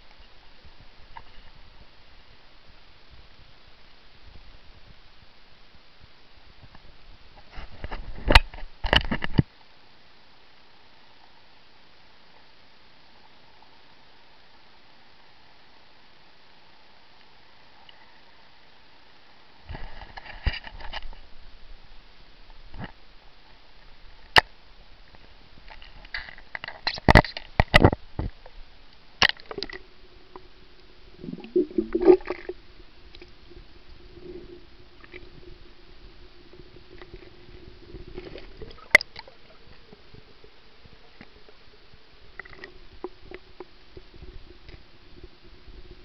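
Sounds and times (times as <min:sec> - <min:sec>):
low underwater hum: 0:21.1 - 0:46.0
water sloshing and gurgling: 0:31.0 - 0:40.3.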